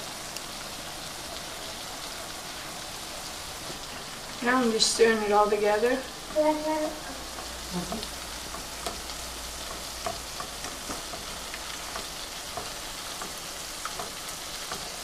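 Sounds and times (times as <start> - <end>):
gravy sizzling in a skillet: 0.0 - 15.0
whisk ticking against pan: 6.2 - 15.0.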